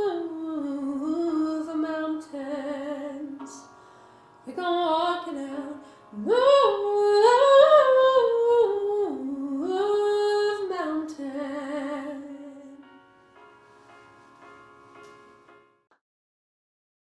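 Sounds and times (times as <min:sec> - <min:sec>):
woman singing unaccompanied: 0:00.0 - 0:03.6, 0:04.5 - 0:12.8.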